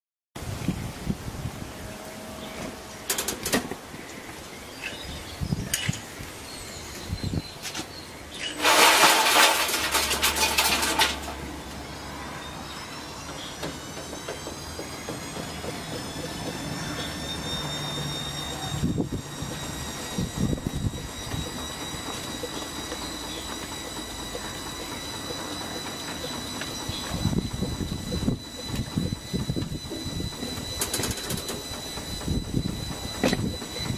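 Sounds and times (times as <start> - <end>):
washing machine motor whine: 0.4 - 33.9
washing machine drum rattling: 8.6 - 11.5, 18.9 - 33.9.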